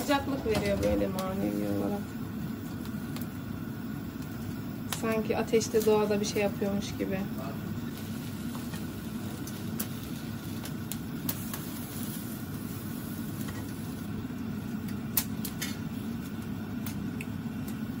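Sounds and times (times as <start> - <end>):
low mechanical hum: 0.0 - 18.0
food popping in a pan: 2.2 - 3.4, 4.1 - 6.8, 7.7 - 18.0.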